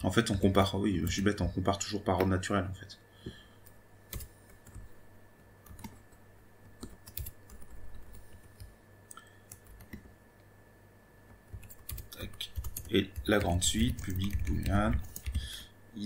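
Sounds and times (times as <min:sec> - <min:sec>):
faint steady hum: 0:00.0 - 0:16.0
computer keyboard typing: 0:04.1 - 0:04.9, 0:05.6 - 0:08.7, 0:09.4 - 0:10.1, 0:11.5 - 0:15.6.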